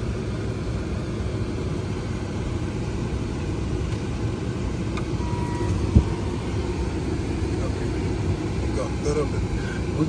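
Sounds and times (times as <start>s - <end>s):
car road rumble: 0.0s - 10.0s
short electronic beep: 5.2s - 6.4s.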